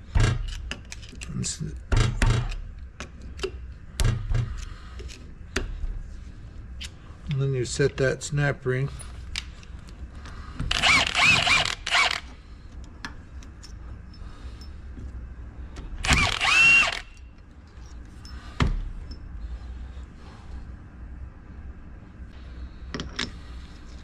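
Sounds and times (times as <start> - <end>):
cordless drill motor whining: 10.7 - 12.3, 16.0 - 17.2.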